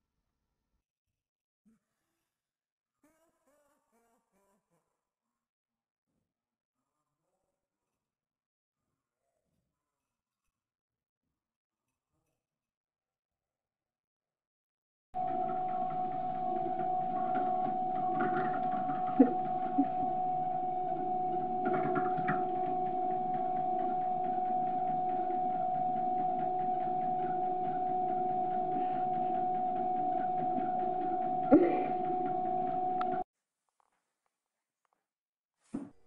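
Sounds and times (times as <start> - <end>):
treadmill motor whining: 15.2 - 33.2.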